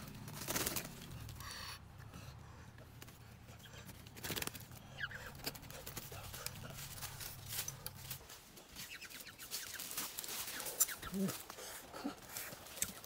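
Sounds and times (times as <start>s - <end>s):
crunching of dry leaves: 5.2s - 13.0s.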